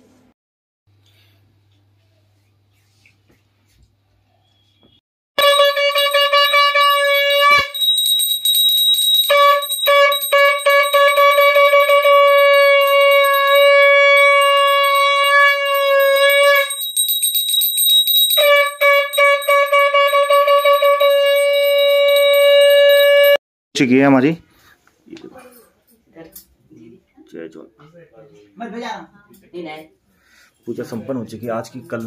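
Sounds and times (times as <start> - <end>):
conch shell blasts: 5.4 - 23.4
hand bell ringing rapidly: 5.4 - 23.4.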